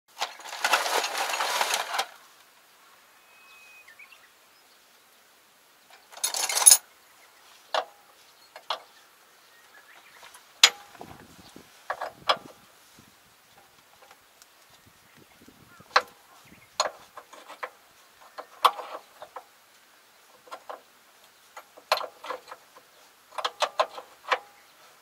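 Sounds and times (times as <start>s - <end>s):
tools rattling in metal toolbox: 0.2s - 2.1s, 6.1s - 6.8s
metallic clinks: 6.2s - 6.8s.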